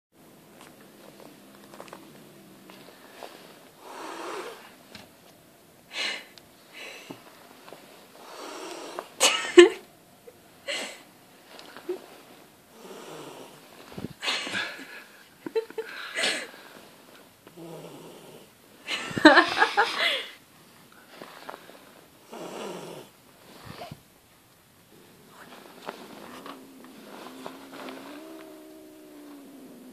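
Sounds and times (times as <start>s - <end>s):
cat hissing: 3.8s - 4.7s, 24.9s - 29.9s.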